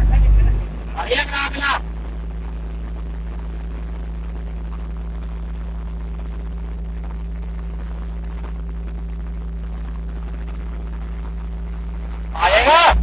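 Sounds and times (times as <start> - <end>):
crane diesel engine running: 0.0 - 1.7.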